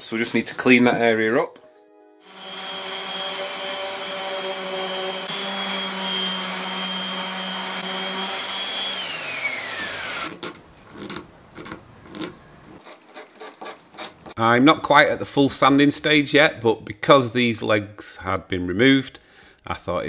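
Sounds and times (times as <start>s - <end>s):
orbital sander whining: 2.2s - 10.3s
hand sanding wood strokes: 2.3s - 10.2s.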